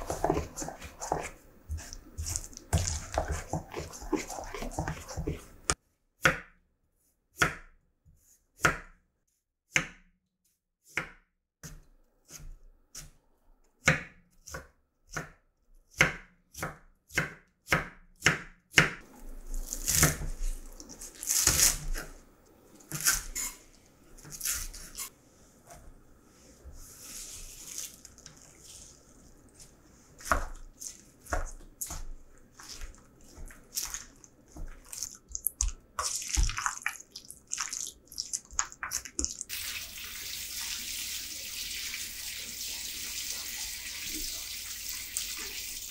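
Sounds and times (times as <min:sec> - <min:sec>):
knife cutting on wooden board: 0:00.0 - 0:05.8.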